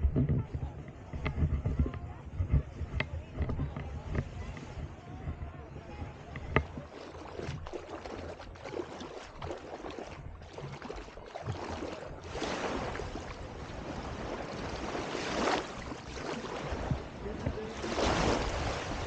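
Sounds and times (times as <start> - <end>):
wind noise: 0.0 - 10.9, 11.5 - 19.0
rushing splashing water: 6.6 - 19.0.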